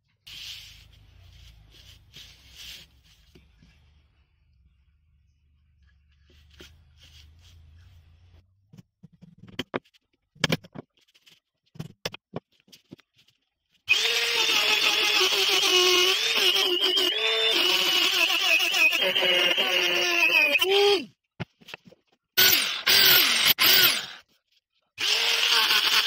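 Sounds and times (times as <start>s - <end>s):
rotary tool grinding wood: 13.9s - 20.8s, 22.4s - 24.2s, 25.0s - 26.0s.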